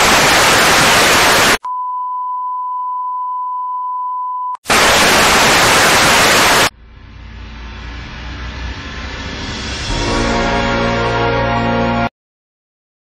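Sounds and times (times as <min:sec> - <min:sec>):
tv static hiss: 0:00.0 - 0:01.6, 0:04.6 - 0:06.7
music: 0:07.2 - 0:12.1.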